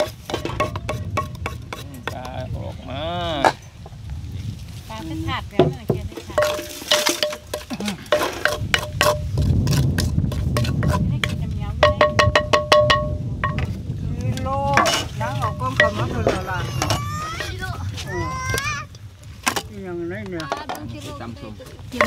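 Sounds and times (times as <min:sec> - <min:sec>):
wooden pestle knocking in clay mortar: 0:00.0 - 0:02.5, 0:05.6 - 0:13.8, 0:14.7 - 0:17.6.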